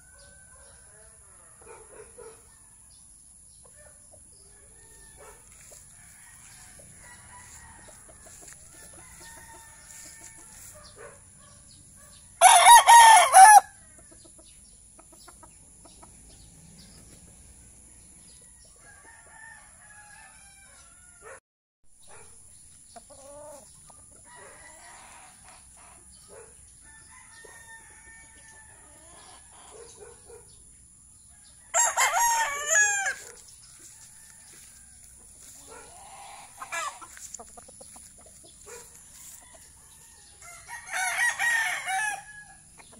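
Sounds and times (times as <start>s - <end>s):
rooster crowing: 4.5s - 11.0s, 12.4s - 13.8s, 18.8s - 21.4s, 24.3s - 25.8s, 26.8s - 30.0s, 31.3s - 37.2s, 38.7s - 42.7s
chicken clucking: 14.0s - 17.3s, 22.9s - 26.4s, 35.1s - 40.6s.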